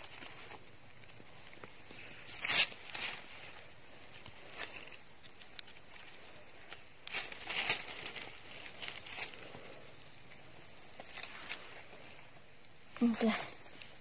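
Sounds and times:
dry leaves crackling and rustling: 0.0s - 12.2s.

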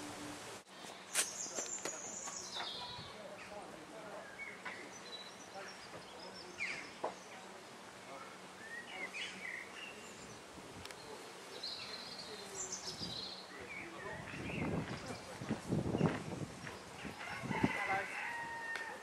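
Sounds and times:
birds chirping: 0.9s - 19.0s.

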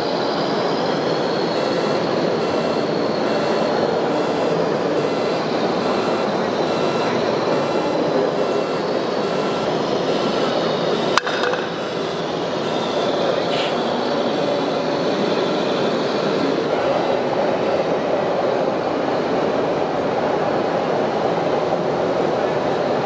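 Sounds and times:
busy exhibition hall noise: 0.0s - 23.0s
sharp knock: 11.2s - 11.8s.

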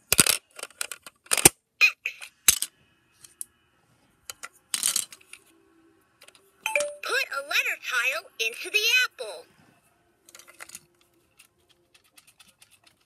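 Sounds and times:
toys clicking and clacking: 10.3s - 13.0s.

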